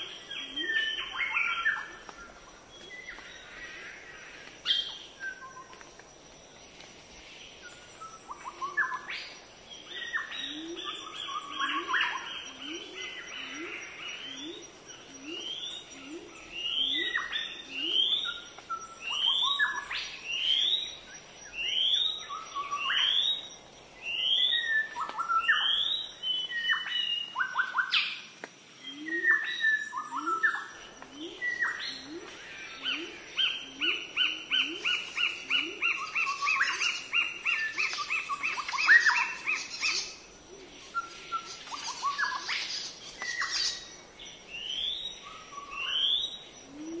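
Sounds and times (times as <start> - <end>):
birds chirping: 28.8 - 46.9.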